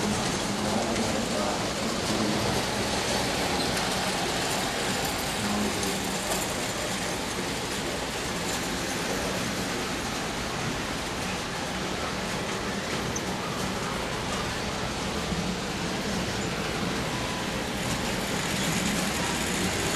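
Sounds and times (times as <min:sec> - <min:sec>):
model train wheels and motors: 0:00.0 - 0:19.9.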